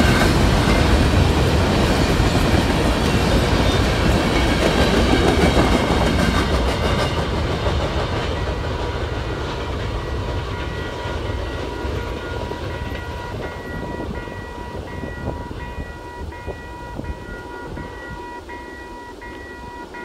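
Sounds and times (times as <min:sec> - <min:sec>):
train wheels clacking on rails: 0:00.0 - 0:20.0
crossing signal bell ringing: 0:08.4 - 0:20.0.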